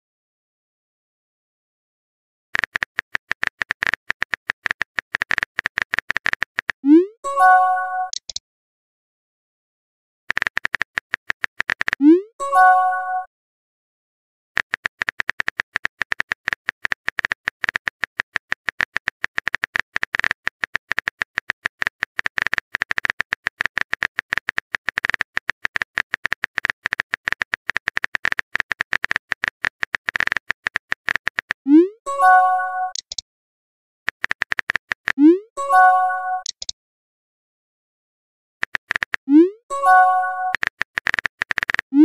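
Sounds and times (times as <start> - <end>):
phone keyboard typing clicks: 2.6 - 6.8, 8.0 - 8.4, 10.3 - 12.1, 14.6 - 31.6, 32.4 - 33.2, 34.1 - 36.8, 38.6 - 42.0.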